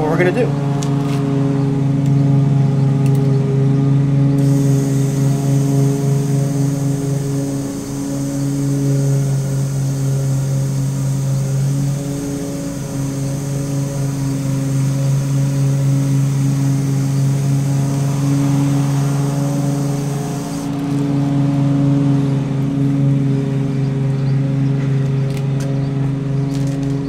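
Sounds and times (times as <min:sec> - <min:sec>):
low hum: 0:04.3 - 0:22.6
aerosol can spraying hiss: 0:04.4 - 0:21.0.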